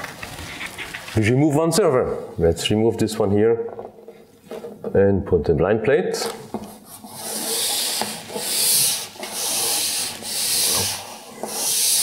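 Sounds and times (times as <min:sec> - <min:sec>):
blanking plate rubbing into rails: 0:06.7 - 0:12.0.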